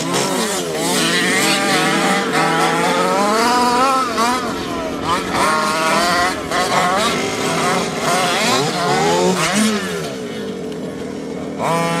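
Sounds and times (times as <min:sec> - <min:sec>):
small two-stroke engines revving: 0:00.0 - 0:12.0.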